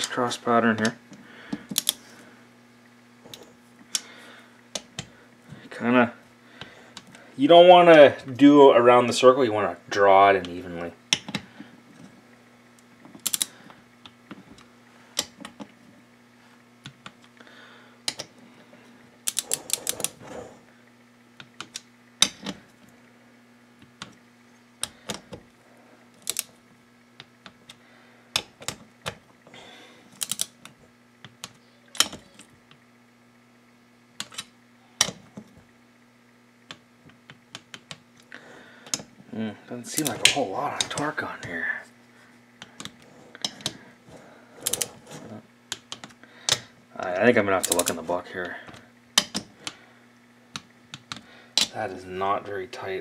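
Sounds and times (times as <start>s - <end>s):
torque wrench clicking: 13.2s - 13.5s.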